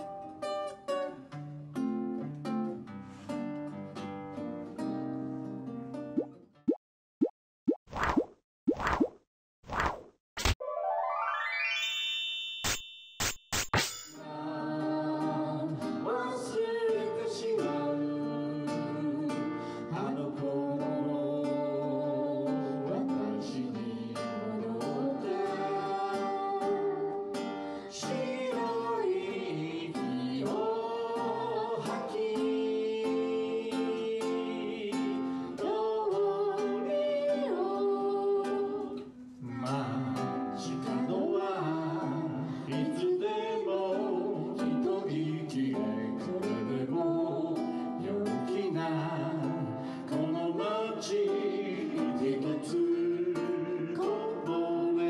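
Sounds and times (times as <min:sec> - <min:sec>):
song with voice and plucked guitar: 0:00.0 - 0:06.4, 0:14.2 - 0:55.0.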